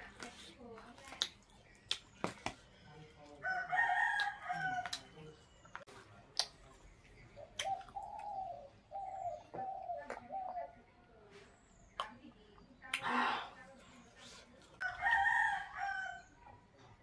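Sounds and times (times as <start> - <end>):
rooster crowing: 3.4 - 4.9, 14.8 - 16.3.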